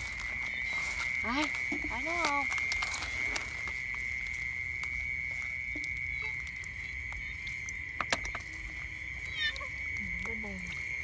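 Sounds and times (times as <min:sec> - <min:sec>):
rustling in grass: 0:00.0 - 0:05.6
insect trill: 0:00.0 - 0:11.0.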